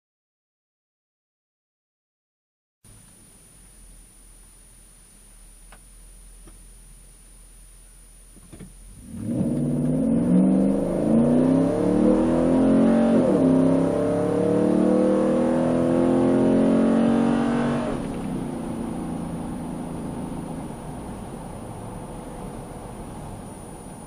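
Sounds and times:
truck engine accelerating hard: 8.9s - 24.0s.

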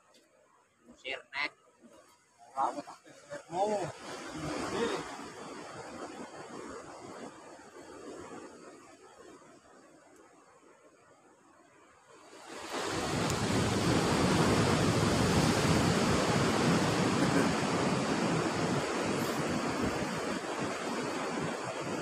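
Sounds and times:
sea wind: 1.3s - 22.0s
surf: 1.8s - 9.0s, 12.3s - 22.0s.

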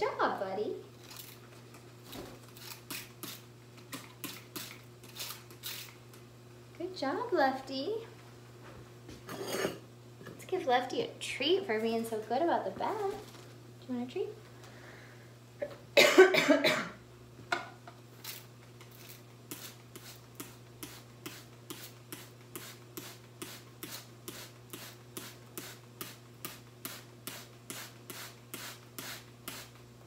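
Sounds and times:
spray bottle misting water: 19.5s - 29.8s.

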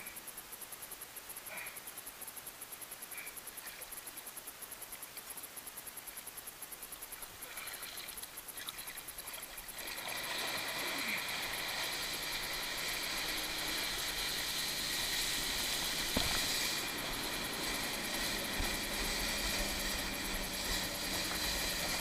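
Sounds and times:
water rushing and spraying: 7.4s - 22.0s.

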